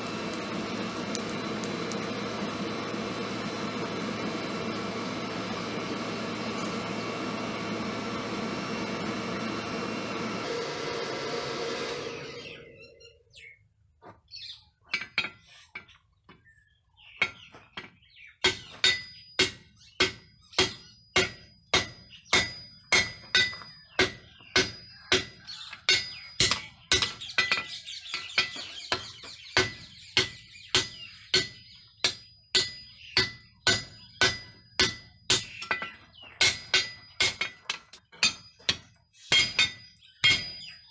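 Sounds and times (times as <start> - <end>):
forge blower rushing air: 0.0 - 13.0
hammer ringing on anvil: 18.4 - 28.6, 29.6 - 40.9.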